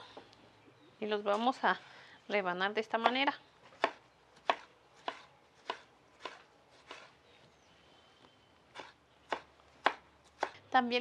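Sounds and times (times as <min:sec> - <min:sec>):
knife slicing on cutting board: 0:03.8 - 0:07.1.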